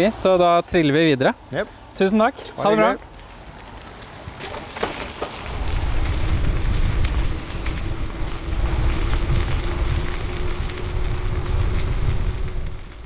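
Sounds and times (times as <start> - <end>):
road noise rumble: 0.0 - 13.0
wind buffeting microphone: 5.4 - 13.0.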